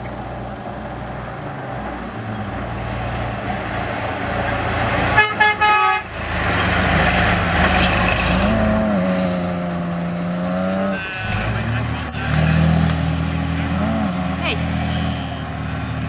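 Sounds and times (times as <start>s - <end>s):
truck diesel engine running: 0.0s - 16.0s
tyres rushing in sand: 0.0s - 16.0s
truck horn toots: 4.9s - 16.0s.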